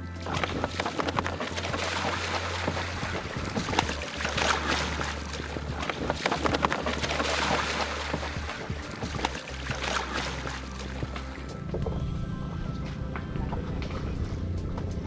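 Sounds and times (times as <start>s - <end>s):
buffalo splashing in water: 0.0s - 11.5s
steady low hum: 0.0s - 15.0s.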